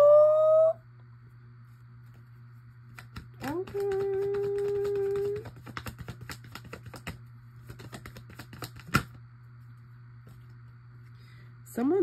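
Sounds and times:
person humming: 0:00.0 - 0:00.8, 0:03.4 - 0:05.5
cards being shuffled: 0:02.8 - 0:09.2.

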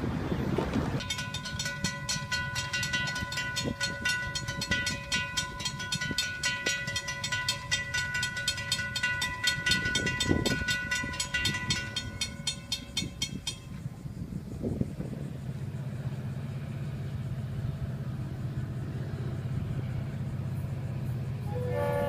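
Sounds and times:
crossing bell ringing: 0:01.0 - 0:13.9.

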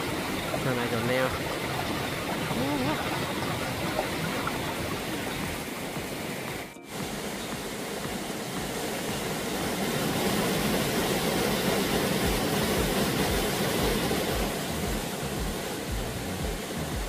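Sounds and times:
stream water rushing: 0:00.0 - 0:17.0
soft low thumps: 0:12.2 - 0:17.0.

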